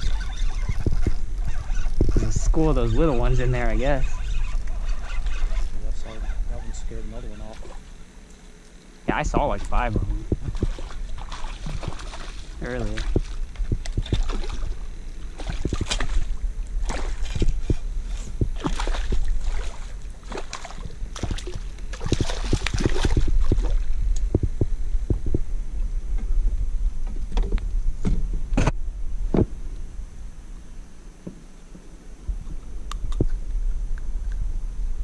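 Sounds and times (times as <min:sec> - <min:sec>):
steady low rumble: 0:00.0 - 0:35.0
light water sounds: 0:07.3 - 0:24.4.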